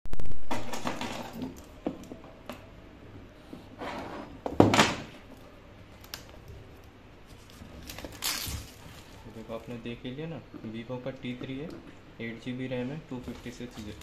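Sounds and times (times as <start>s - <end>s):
plastic film crinkling: 7.3s - 9.8s.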